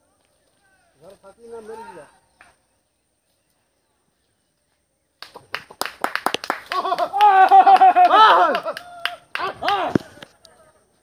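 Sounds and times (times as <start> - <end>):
high-pitched human yelling: 7.2 - 8.7.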